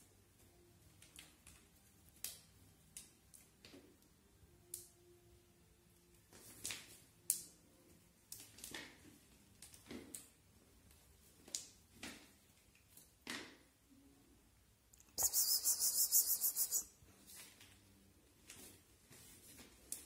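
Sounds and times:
feathers swishing: 15.2 - 16.8.

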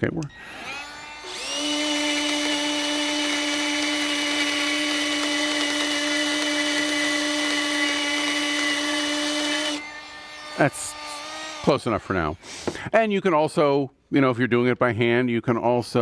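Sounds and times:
motor whine: 0.2 - 11.7.

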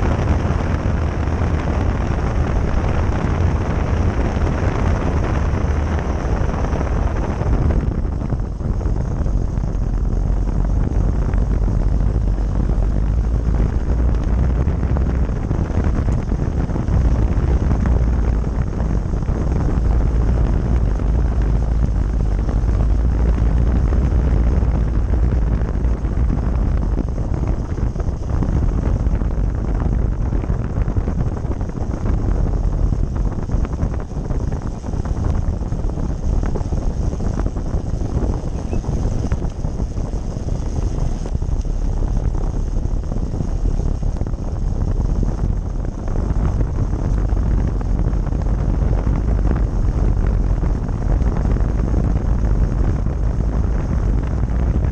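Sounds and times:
wind on microphone: 0.0 - 54.9.

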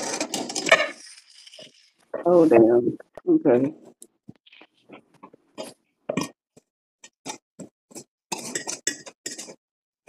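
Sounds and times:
metal baking pan clinking: 8.3 - 9.6.

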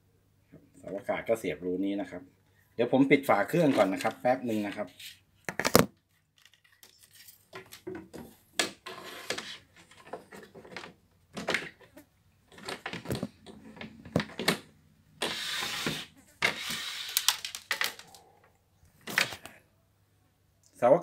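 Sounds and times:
radio back cover clicks and rattles: 5.5 - 6.9, 12.5 - 14.6.

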